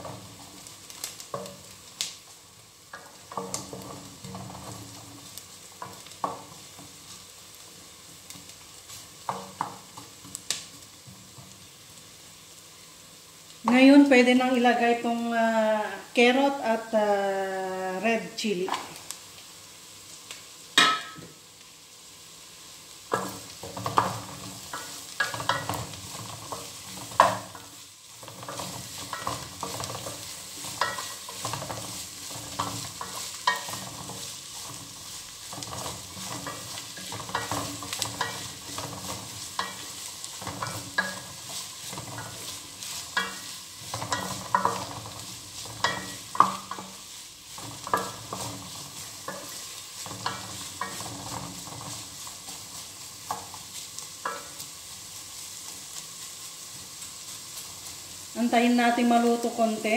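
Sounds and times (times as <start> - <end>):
vegetables sizzling in oil: 0.0 - 59.9
wooden spoon scraping a pot: 23.1 - 58.2.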